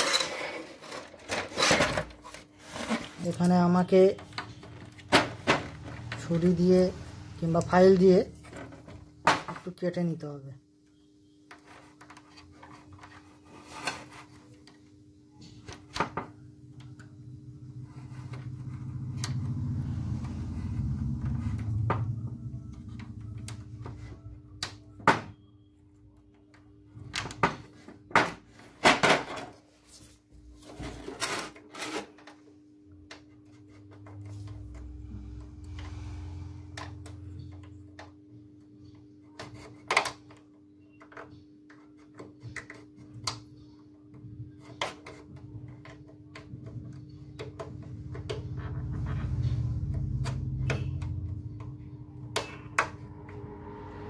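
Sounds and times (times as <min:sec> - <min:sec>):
steady low hum: 0:12.1 - 0:27.4, 0:46.5 - 0:54.0
low rumble: 0:17.2 - 0:24.6, 0:48.3 - 0:54.0.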